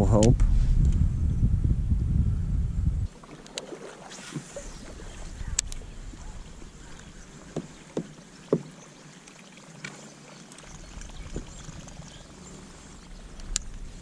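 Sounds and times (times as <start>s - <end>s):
wind noise: 0.0s - 3.1s, 4.4s - 7.3s, 10.7s - 12.2s
faint water: 3.0s - 14.0s.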